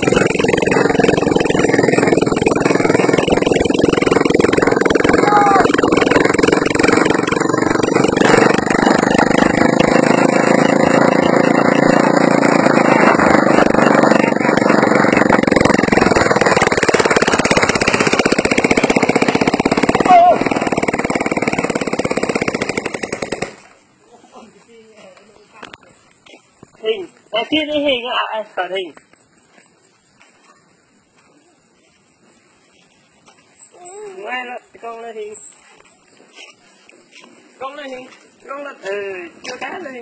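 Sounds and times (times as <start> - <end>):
motorbike engine running: 0.0 - 23.6.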